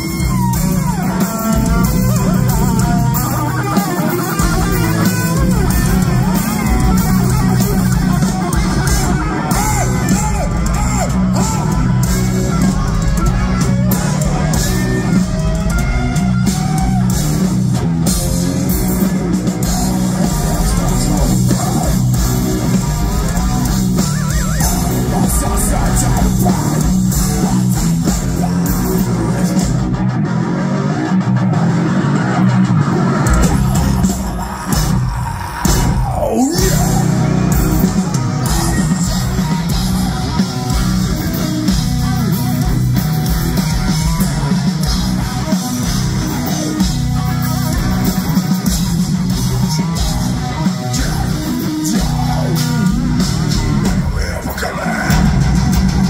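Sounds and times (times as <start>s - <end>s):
heavy metal band playing live: 0.0s - 56.0s.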